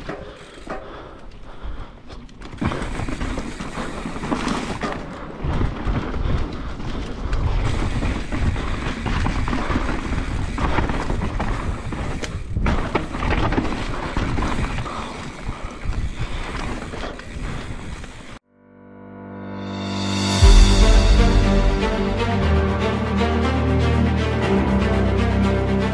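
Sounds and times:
bike knocking and rattling: 0.0 - 18.4
tyres rolling over dirt and stones: 2.2 - 18.4
wind rumble on microphone: 5.4 - 13.5
music: 18.5 - 25.9.

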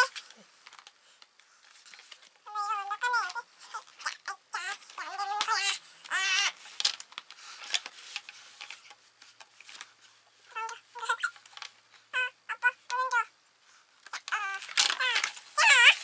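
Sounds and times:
child's high-pitched vocal sounds: 2.5 - 6.6, 10.5 - 11.4, 12.1 - 13.3, 14.1 - 16.0.

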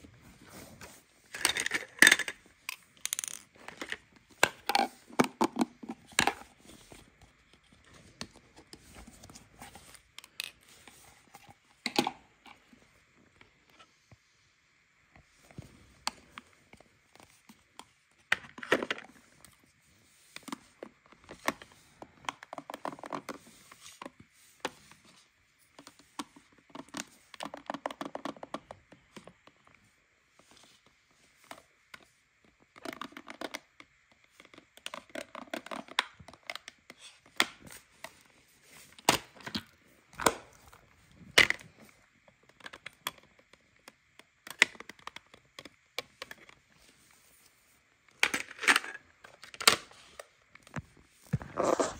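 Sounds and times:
plastic toy pieces clattering: 1.3 - 6.4, 48.2 - 49.8
toothbrush rubbing on plastic: 51.4 - 51.9.

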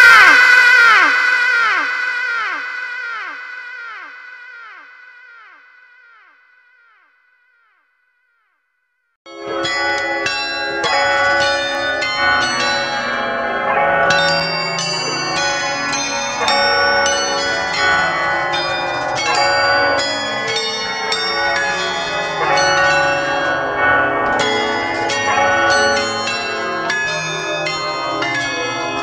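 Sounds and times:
bells pealing: 9.3 - 29.0.

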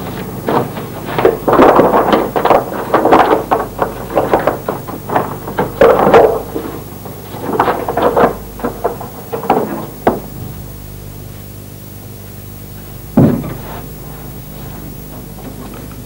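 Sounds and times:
handling knocks and rustles: 0.0 - 10.6, 12.8 - 16.0
loud thud: 13.1 - 14.0.

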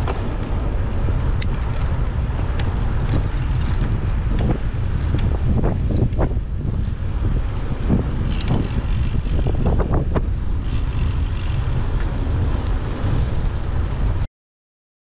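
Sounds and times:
wind buffeting microphone: 0.0 - 14.3.

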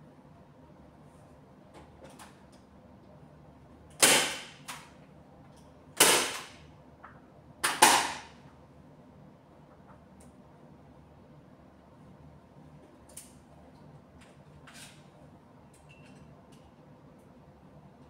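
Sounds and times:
staple gun firing: 4.0 - 4.8, 6.0 - 6.6, 7.6 - 8.3.

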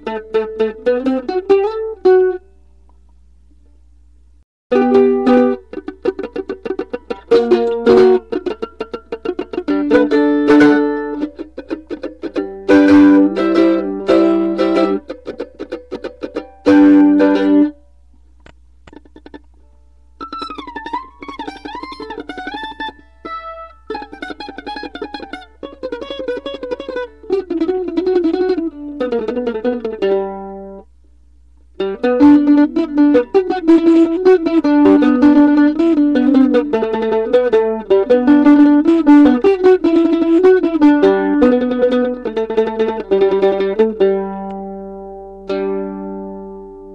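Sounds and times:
mandolin picking: 0.0 - 2.6, 4.7 - 31.0, 31.6 - 46.9.

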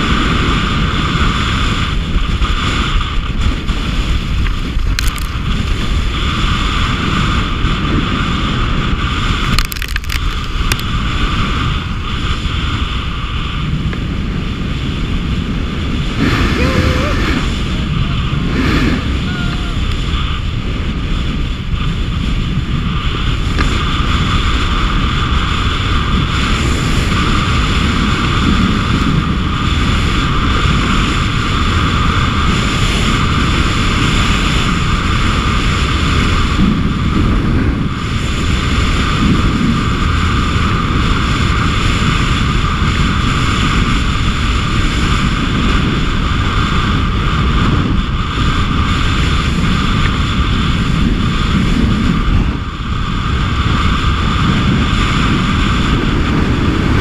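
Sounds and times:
wind buffeting microphone: 0.0 - 57.0
skis hissing on packed snow: 16.0 - 20.2.

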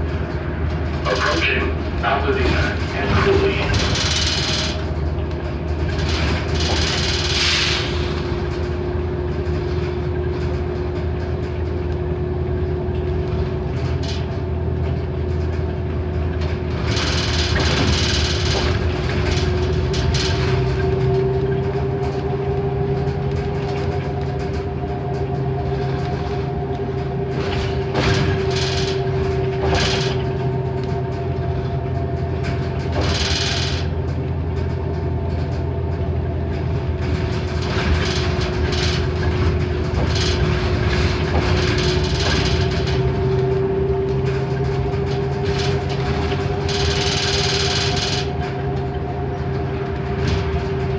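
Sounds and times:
steady whine: 0.0 - 9.4
bus engine drone: 0.0 - 50.9.

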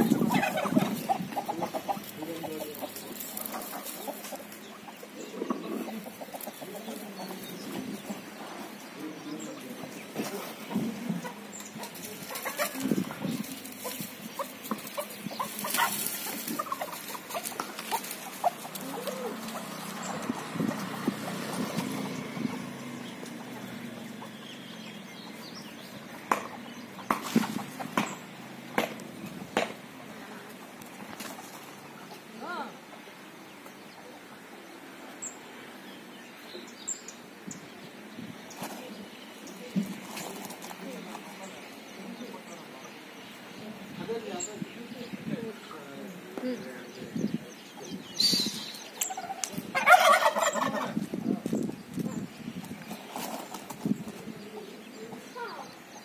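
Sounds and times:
turkey gobbling: 0.0 - 6.8, 13.8 - 20.3, 49.0 - 51.0
turkeys clucking and calling: 0.0 - 34.4, 47.7 - 55.6.

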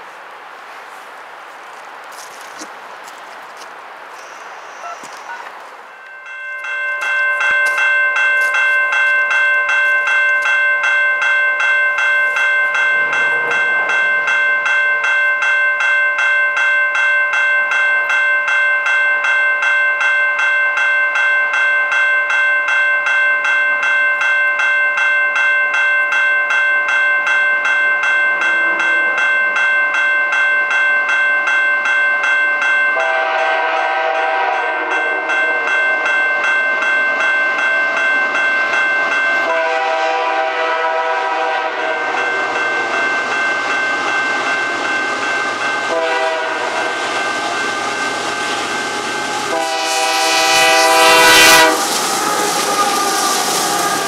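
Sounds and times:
train running noise: 0.0 - 22.0, 25.0 - 54.0
crossing bell ringing: 4.2 - 54.0
locomotive horn: 33.0 - 36.1, 39.4 - 42.8, 45.9 - 53.2.

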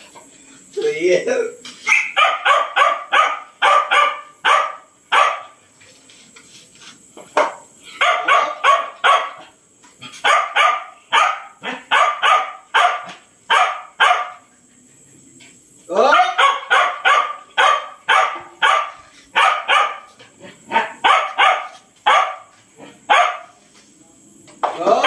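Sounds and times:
dogs barking: 1.8 - 5.6, 7.9 - 14.5, 16.0 - 23.6.

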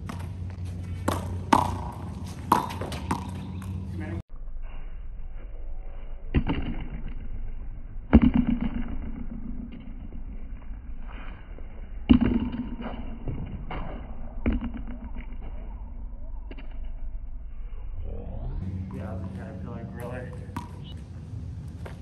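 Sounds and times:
faint ball taps: 20.3 - 20.8.

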